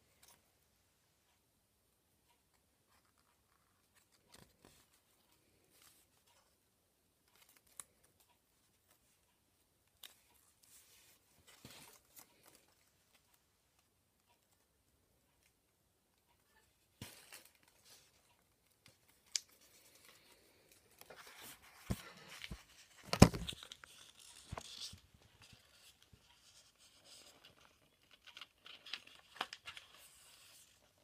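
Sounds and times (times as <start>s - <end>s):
paper crinkling and rustling: 10.0s - 13.3s, 17.0s - 31.0s.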